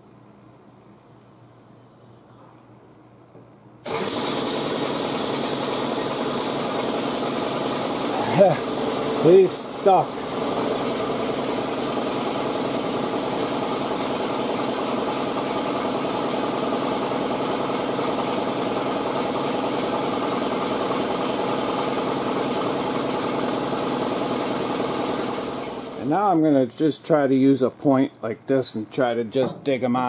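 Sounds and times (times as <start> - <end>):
machine motor humming: 3.9 - 26.1.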